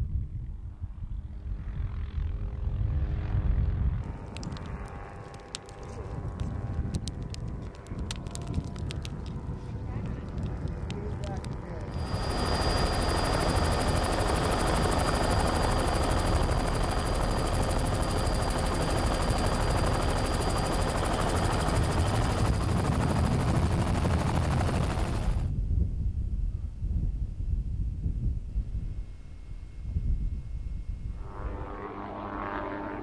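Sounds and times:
helicopter rotor beating: 0:10.2 - 0:32.6.

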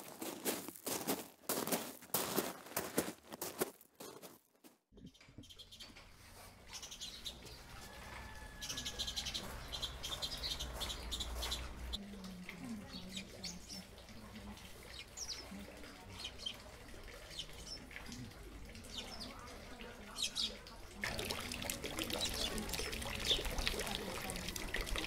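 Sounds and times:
small birds chirping: 0:05.0 - 0:25.0.

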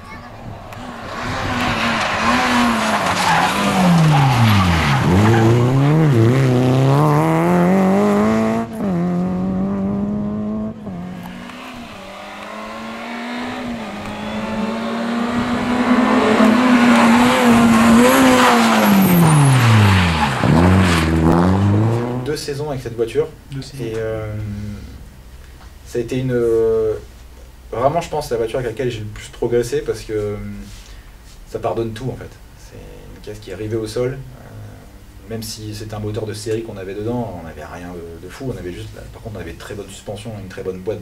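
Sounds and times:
tyres skidding: 0:00.0 - 0:22.5
rally car engine revving: 0:00.4 - 0:22.4.

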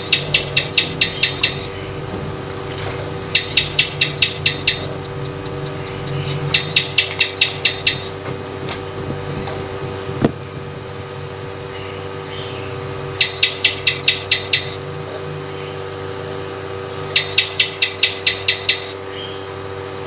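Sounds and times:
lizard clicking chirps: 0:00.0 - 0:02.0, 0:03.3 - 0:08.2, 0:13.2 - 0:14.8, 0:17.1 - 0:19.4
steady hum: 0:00.0 - 0:20.0.

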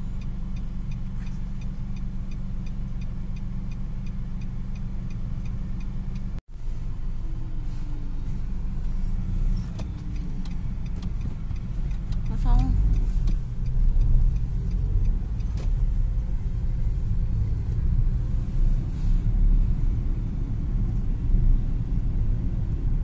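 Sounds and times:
car driving road noise: 0:00.0 - 0:23.0
car engine idling: 0:00.0 - 0:23.0
indicator ticking: 0:00.2 - 0:06.4, 0:08.8 - 0:17.9.

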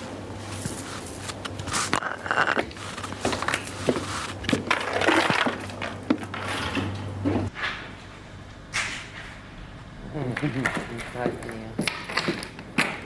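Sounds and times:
low hum: 0:04.8 - 0:11.8.

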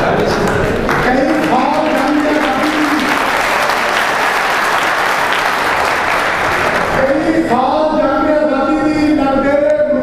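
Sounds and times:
audience applauding: 0:00.0 - 0:07.2
man reciting in sung style: 0:07.0 - 0:10.0.

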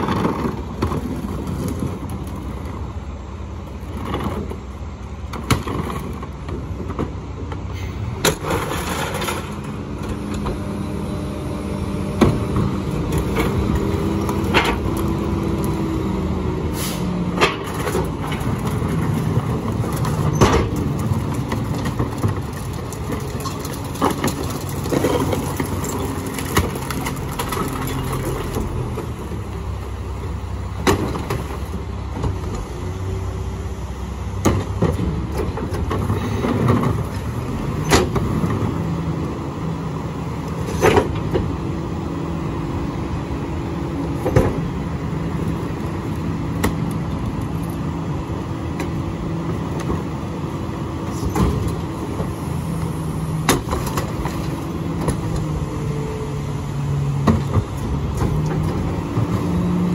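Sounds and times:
diesel engine running: 0:00.0 - 0:59.9
carts banging against hopper: 0:08.2 - 0:09.8, 0:12.2 - 0:15.4, 0:17.3 - 0:29.1, 0:53.3 - 0:55.4.

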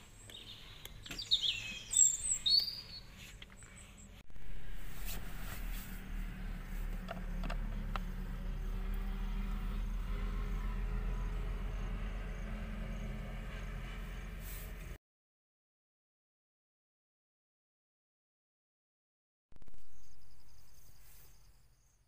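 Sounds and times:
low vehicle rumble: 0:00.0 - 0:15.0.

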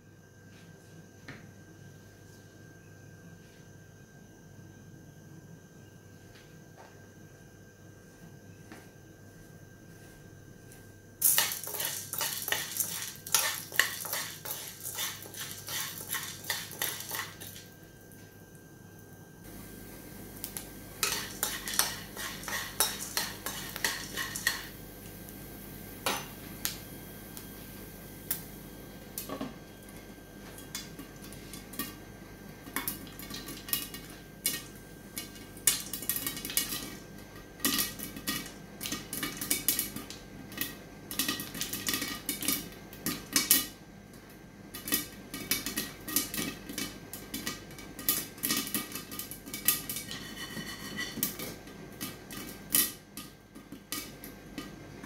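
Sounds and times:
kernels hitting a glass lid: 0:11.2 - 0:17.6
spoon stirring kernels in a pan: 0:11.2 - 0:17.7, 0:19.5 - 0:26.4, 0:32.6 - 0:43.8, 0:44.7 - 0:54.8
popcorn popping: 0:11.2 - 0:18.3, 0:19.4 - 0:55.0.

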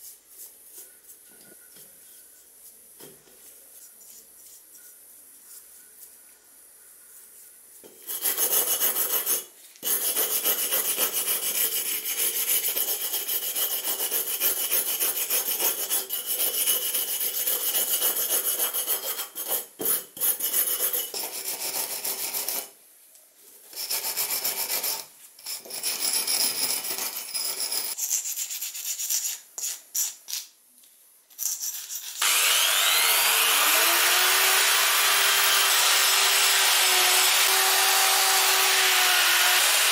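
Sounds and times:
drill wire wheel whining: 0:32.2 - 0:39.9.

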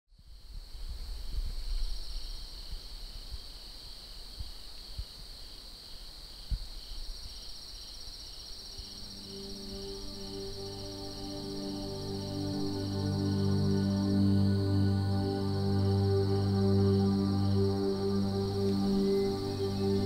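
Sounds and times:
crickets trilling: 0:00.2 - 0:20.0
soft ambient music: 0:08.4 - 0:20.0.

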